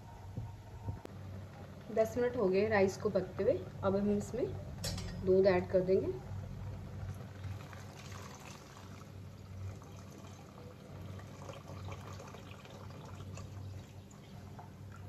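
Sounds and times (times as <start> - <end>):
low steady hum: 0.0 - 15.0
milk pouring into a pot: 6.8 - 15.0.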